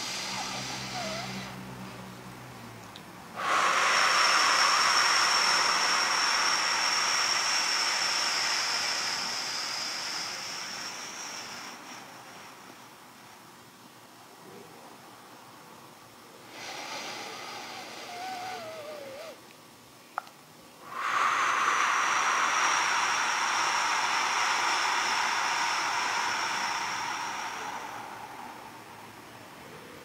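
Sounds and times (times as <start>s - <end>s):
man inhaling through nose: 0.0s - 1.7s, 3.4s - 12.9s, 16.4s - 19.4s, 20.8s - 29.5s
forceful exhale through pursed lips: 0.0s - 2.0s, 3.3s - 13.5s, 16.4s - 19.4s, 20.8s - 30.0s.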